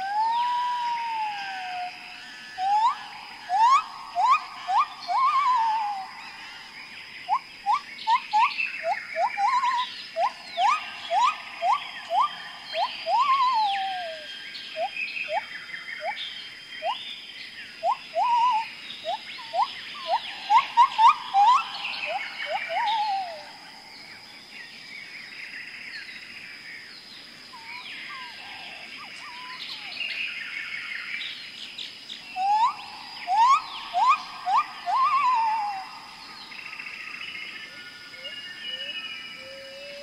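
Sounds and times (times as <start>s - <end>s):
birds whistling calls: 0.0s - 17.1s, 17.8s - 23.7s, 27.6s - 31.2s, 32.2s - 40.0s
high chirps: 2.6s - 6.4s, 7.3s - 15.4s, 17.8s - 23.5s, 32.4s - 36.0s.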